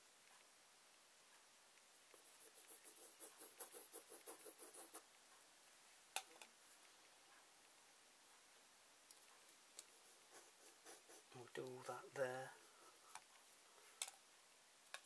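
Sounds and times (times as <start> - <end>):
pencil scratching on paper: 2.0 - 5.1, 9.9 - 11.4.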